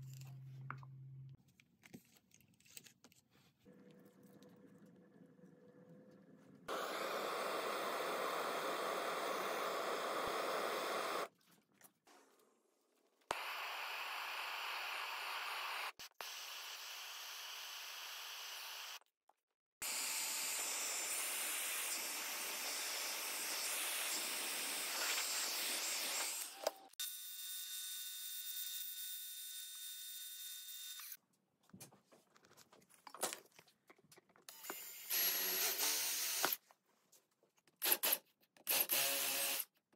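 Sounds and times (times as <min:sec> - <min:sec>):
heat gun blowing: 0:06.7 - 0:11.3, 0:13.3 - 0:19.0.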